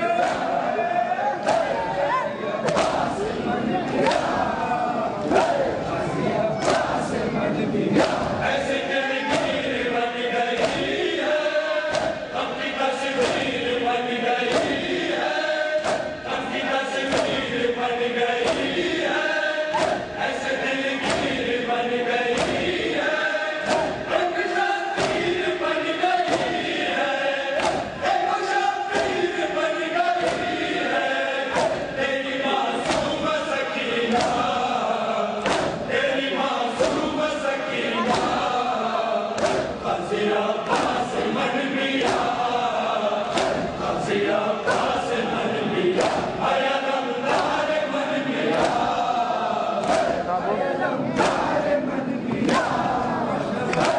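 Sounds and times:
crowd of men chanting: 0.0 - 53.9
hands slapping chests: 1.4 - 1.8, 2.6 - 3.1, 4.0 - 4.4, 6.6 - 7.0, 8.0 - 8.3, 10.6 - 10.9, 11.9 - 12.2, 13.2 - 13.5, 14.5 - 14.8, 17.1 - 17.4, 19.7 - 20.0, 21.0 - 21.4, 22.3 - 22.7, 23.6 - 24.0, 25.0 - 25.3, 26.3 - 26.6, 27.6 - 27.9, 30.2 - 30.5, 32.8 - 33.1, 34.1 - 34.4, 35.4 - 35.9, 39.4 - 39.8, 40.7 - 41.0, 42.0 - 42.3, 43.3 - 43.8, 46.0 - 46.3, 47.3 - 47.6, 48.5 - 48.9, 49.8 - 50.2, 51.2 - 51.5, 52.4 - 52.8.

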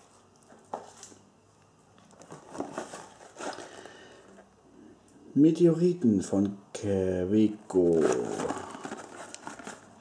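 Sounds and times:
packaging rustling and scraping: 2.1 - 4.5, 7.7 - 10.0.

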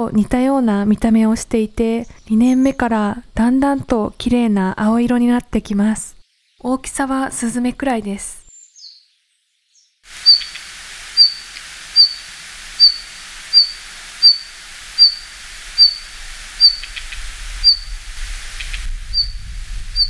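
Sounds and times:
background hiss: 5.8 - 20.0
bird call notes: 10.2 - 20.0.

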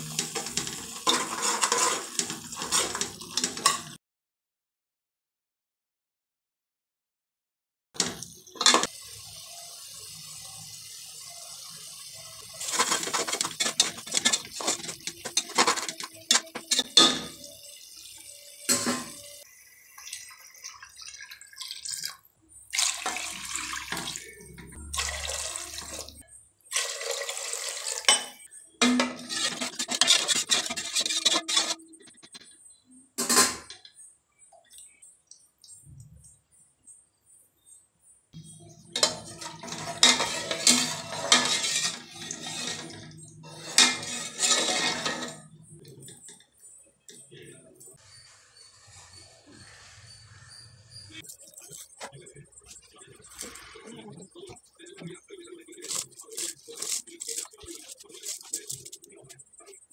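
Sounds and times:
metal spoon scraping pot: 0.0 - 4.0, 8.0 - 8.9, 12.4 - 17.6, 28.0 - 34.0, 38.9 - 46.4, 55.4 - 59.9
water pouring and splashing: 0.0 - 4.0, 8.0 - 32.2, 39.0 - 45.4, 55.7 - 59.2
spoon clinking against pot: 12.6 - 17.6, 39.0 - 46.5.

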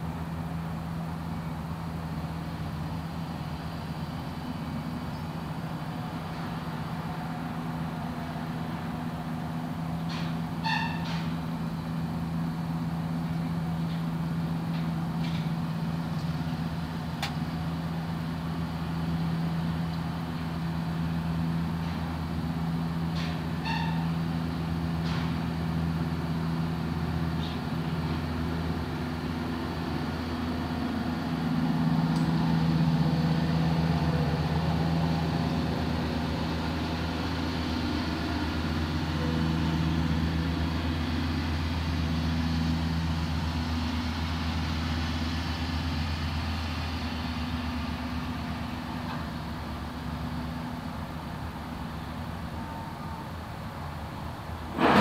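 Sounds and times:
high squeak: 10.6 - 11.2
click: 17.2 - 17.4, 32.1 - 32.3.

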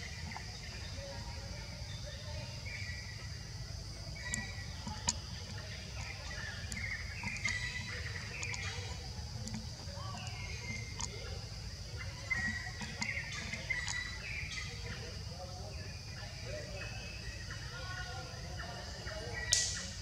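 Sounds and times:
chirping animal calls: 0.0 - 20.0
high insect drone: 0.0 - 20.0
sharp clicks: 4.2 - 11.3, 19.5 - 19.9.

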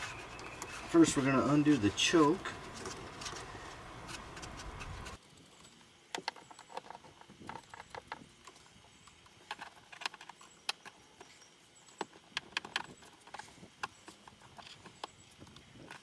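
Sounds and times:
hand tools clicking and tapping: 6.1 - 16.0.

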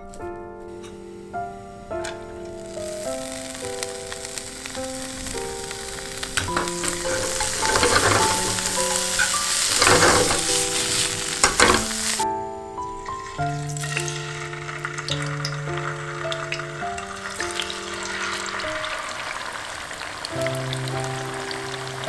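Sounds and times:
gentle background music: 0.0 - 22.0
carrots sizzling in hot oil: 2.1 - 12.2, 13.2 - 22.0
chopsticks stirring in pan: 4.2 - 12.2.

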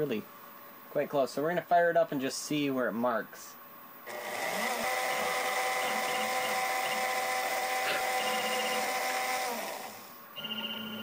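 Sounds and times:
spindle motor whine and hiss: 4.1 - 11.0.

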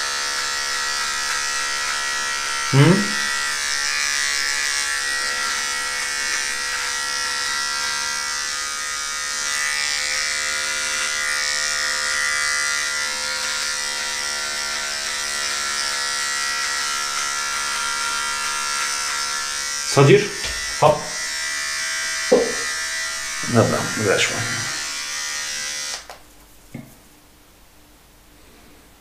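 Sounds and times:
electric beard trimmer buzzing: 0.0 - 26.2.

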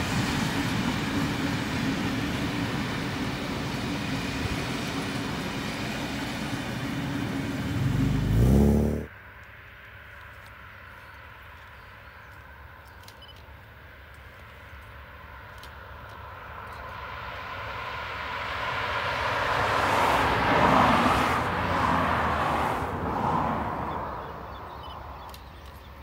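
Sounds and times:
vehicle passing by: 7.5 - 9.1, 17.4 - 24.8.

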